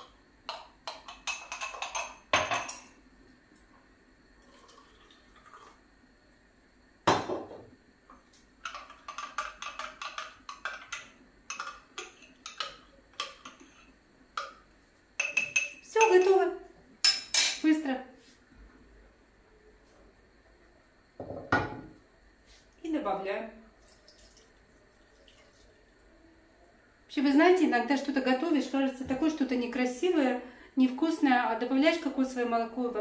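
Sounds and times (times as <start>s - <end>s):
spoon clinking against glass jar: 15.2s - 16.3s.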